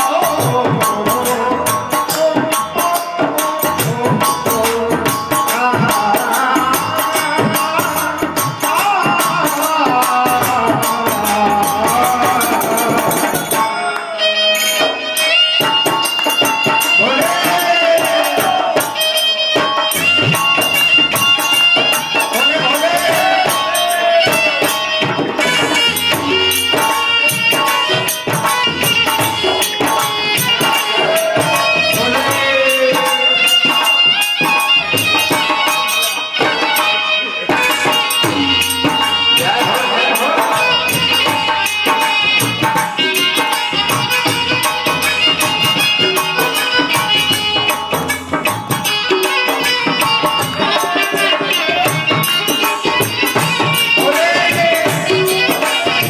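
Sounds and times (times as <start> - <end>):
harmonium: 0.0 - 56.0
jingling hand percussion: 0.0 - 56.0
violin melody: 13.4 - 56.0.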